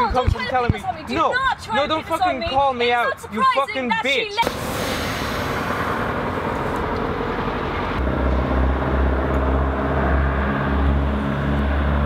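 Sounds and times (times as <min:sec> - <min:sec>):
steady rushing noise: 0:04.4 - 0:11.3
deep droning rumble: 0:04.6 - 0:12.0.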